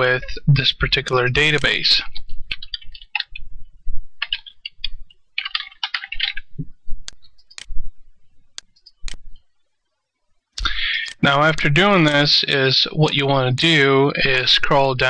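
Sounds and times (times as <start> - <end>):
keyboard typing: 1.0 - 3.5, 4.2 - 7.8
mouse clicks: 4.2 - 7.8, 8.5 - 9.5.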